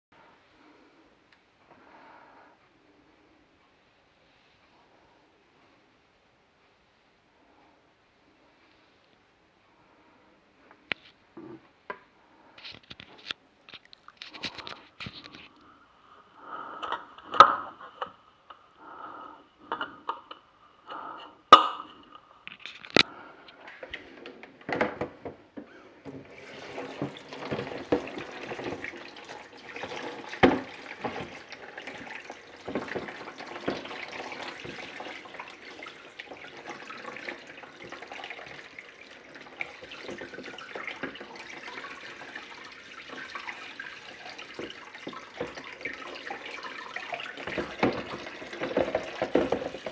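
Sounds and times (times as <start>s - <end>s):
tap water running and splashing: 26.1s - 49.9s.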